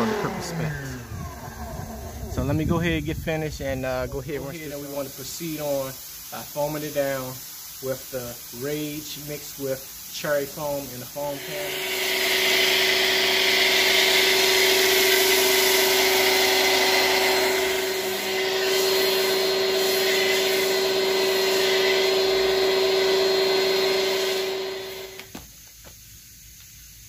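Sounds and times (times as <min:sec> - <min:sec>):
pressure washer motor humming: 0:00.0 - 0:02.9, 0:10.4 - 0:25.4
foam cannon spraying hiss: 0:00.0 - 0:27.0.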